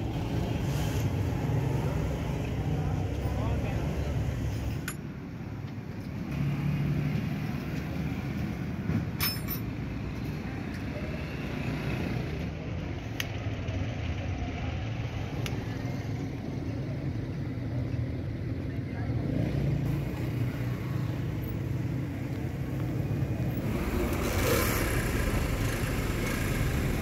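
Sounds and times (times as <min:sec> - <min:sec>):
metallic tool clinks: 0:09.2 - 0:09.8.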